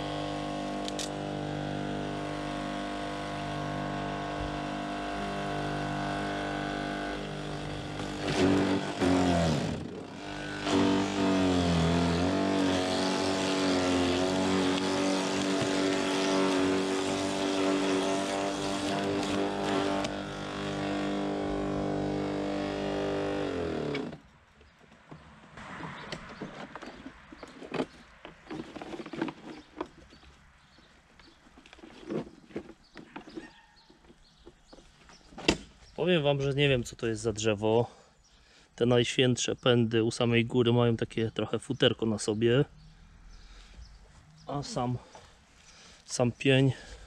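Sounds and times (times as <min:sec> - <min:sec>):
wood chipper motor whine: 0:00.0 - 0:24.2.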